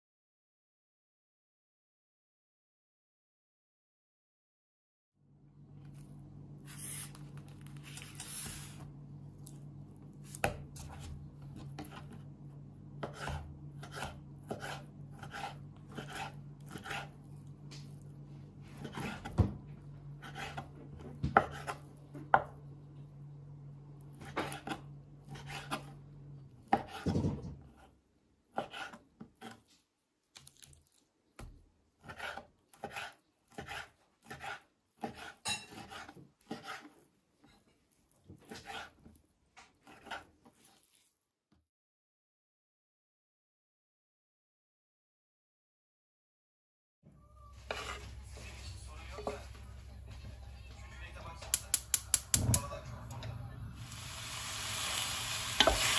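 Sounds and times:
knife cutting on wooden board: 0:13.0 - 0:17.2, 0:18.8 - 0:19.5, 0:20.2 - 0:22.5, 0:24.2 - 0:25.9, 0:26.7 - 0:27.9, 0:28.5 - 0:29.7, 0:32.0 - 0:37.0, 0:38.3 - 0:41.0
steady low hum: 0:47.2 - 0:54.5.

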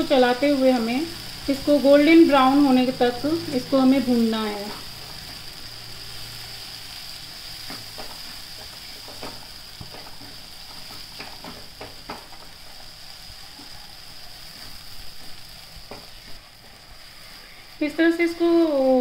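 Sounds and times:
paste sizzling in a pan: 0:00.0 - 0:19.0
spatula scraping and tapping: 0:07.6 - 0:12.5.

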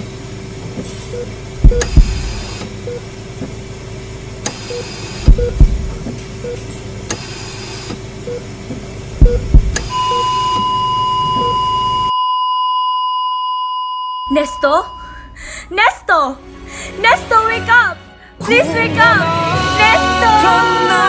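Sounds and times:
low steady hum: 0:00.0 - 0:12.3, 0:14.1 - 0:17.0
heartbeat thumps: 0:01.6 - 0:02.7, 0:05.2 - 0:06.2, 0:08.7 - 0:09.9
faint beeps: 0:09.3 - 0:15.4
high monitor flatline tone: 0:09.3 - 0:15.4.

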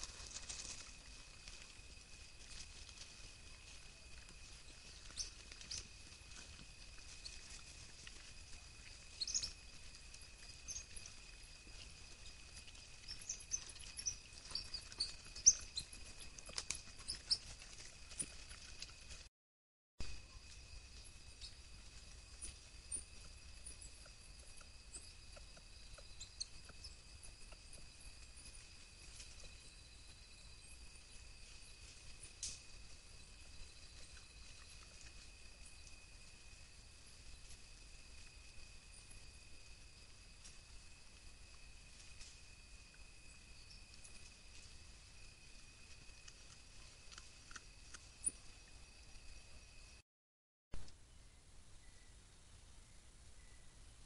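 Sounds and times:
rustling: 0:00.0 - 0:19.3
coatis chirping: 0:03.6 - 0:18.9
faint high-pitched hum: 0:50.8 - 0:54.0.

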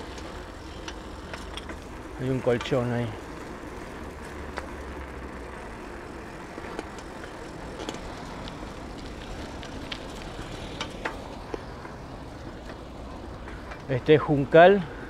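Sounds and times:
light clicks and rattles: 0:00.0 - 0:03.4, 0:06.6 - 0:14.2
bicycle tyres and wind rumbling: 0:00.0 - 0:15.0.

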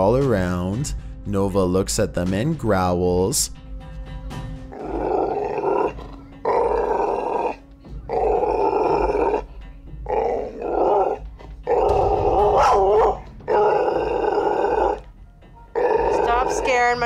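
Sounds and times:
dog growling: 0:04.6 - 0:17.0.

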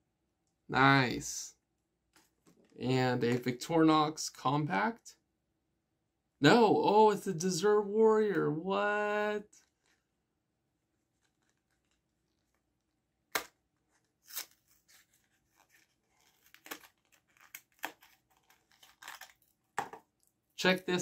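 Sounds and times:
packaging crinkling and tearing: 0:14.2 - 0:19.6.

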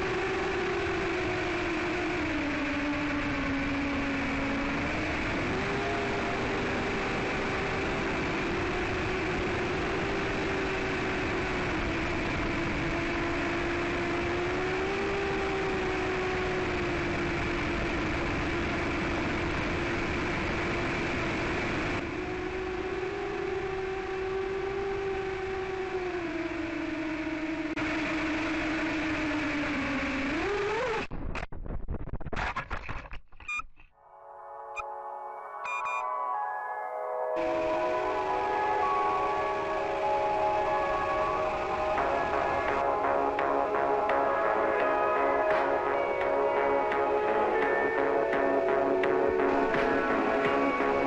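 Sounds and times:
quadcopter motors whining: 0:00.0 - 0:31.0.

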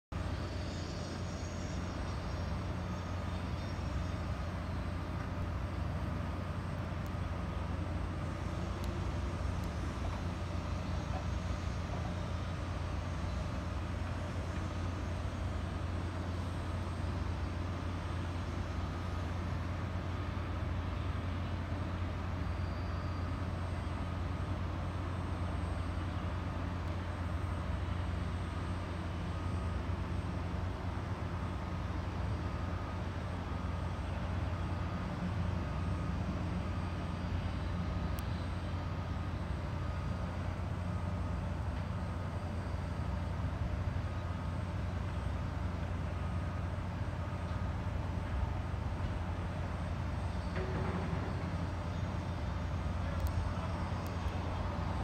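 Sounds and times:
faint steady hum: 0:00.2 - 0:55.0
low urban background rumble: 0:00.2 - 0:55.0.

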